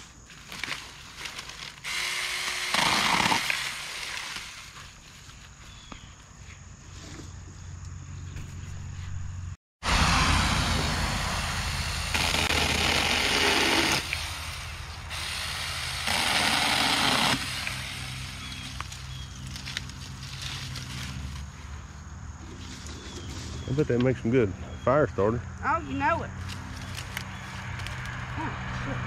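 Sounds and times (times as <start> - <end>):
electric chainsaw cutting branches: 1.6 - 4.8, 9.9 - 21.4.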